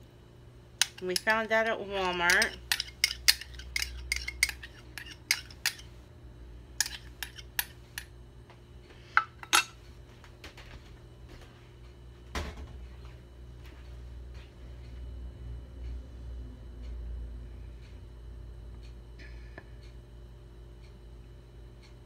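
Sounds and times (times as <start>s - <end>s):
utensils and dishes clinking: 2.1s - 5.9s, 6.8s - 8.1s, 9.2s - 9.8s.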